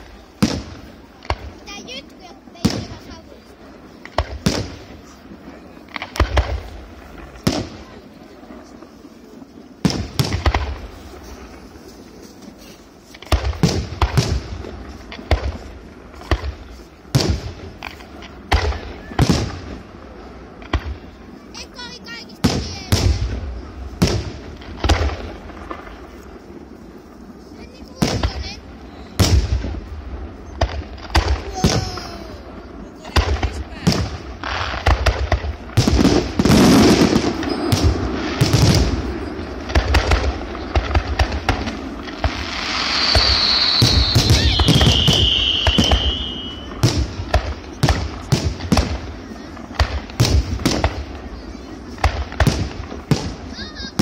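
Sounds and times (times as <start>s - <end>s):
fireworks bangs: 0.0s - 54.0s.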